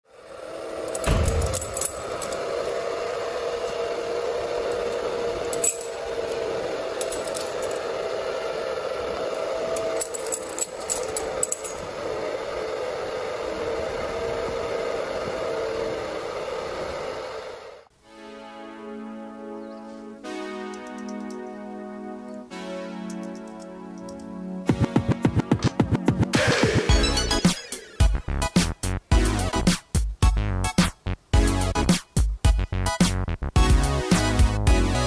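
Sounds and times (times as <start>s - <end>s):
metal keys jingling: 0.9s - 2.4s, 5.5s - 6.0s, 7.0s - 7.8s, 9.8s - 11.8s.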